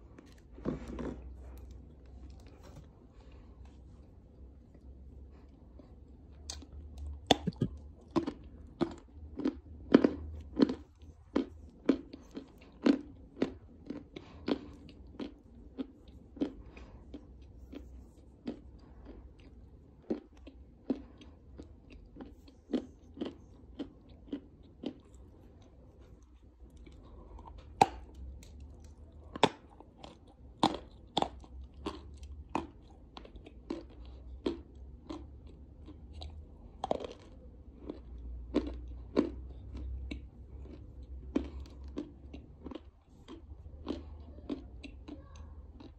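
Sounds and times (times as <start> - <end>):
clay crunching while chewed: 0.0 - 45.9.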